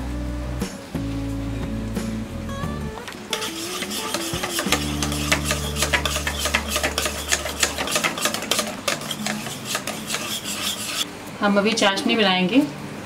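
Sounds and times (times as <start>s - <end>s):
whisk beating batter in steel bowl: 3.3s - 11.0s.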